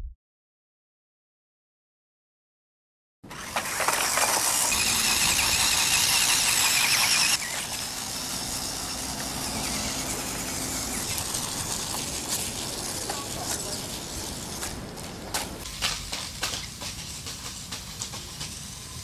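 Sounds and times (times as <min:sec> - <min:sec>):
toy car motor whining: 0:03.3 - 0:15.2.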